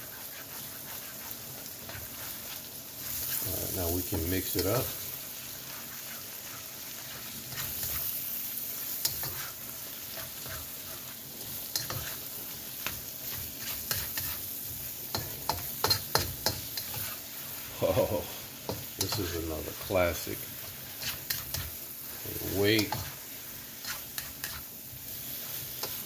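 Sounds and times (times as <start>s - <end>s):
spatula scraping and tapping pan: 0.0s - 3.5s, 5.7s - 8.2s, 9.0s - 17.3s, 18.6s - 23.2s, 23.8s - 24.7s, 25.4s - 26.0s
stir-fry sizzling in a wok: 0.0s - 26.0s.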